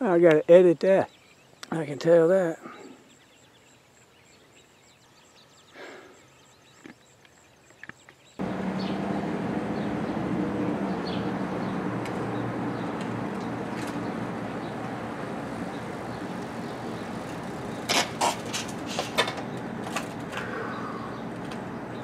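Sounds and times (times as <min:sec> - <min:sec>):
traffic noise with engine hum: 0:08.4 - 0:22.0.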